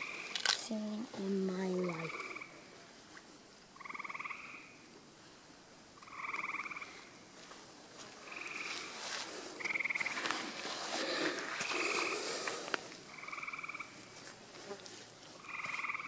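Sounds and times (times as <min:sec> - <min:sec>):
frogs calling in pulsed trills: 0:00.0 - 0:00.4, 0:01.8 - 0:02.7, 0:03.8 - 0:04.9, 0:06.0 - 0:07.2, 0:08.2 - 0:08.9, 0:09.6 - 0:10.2, 0:13.1 - 0:14.0, 0:15.4 - 0:16.0.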